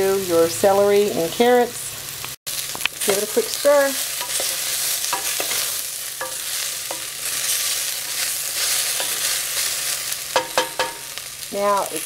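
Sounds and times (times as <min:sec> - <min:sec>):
vegetables sizzling in oil: 0:00.0 - 0:12.0
wooden spoon scraping pan: 0:04.0 - 0:09.8.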